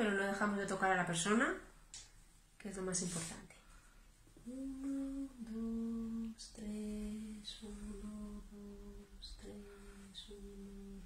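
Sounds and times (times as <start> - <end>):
person humming a slow tune: 4.4 - 11.0.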